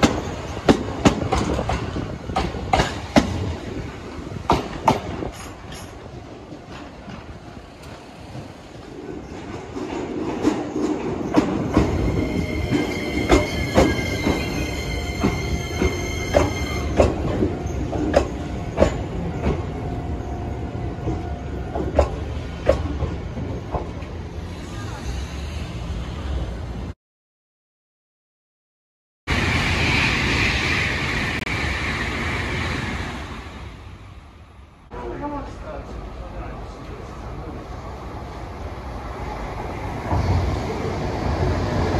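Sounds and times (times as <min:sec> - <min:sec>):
train running on rails: 0:00.0 - 0:26.9, 0:29.3 - 0:41.9.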